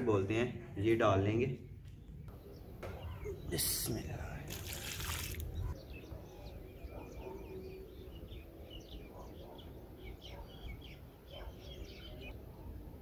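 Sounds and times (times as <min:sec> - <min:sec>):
small birds chirping: 0:01.2 - 0:12.4.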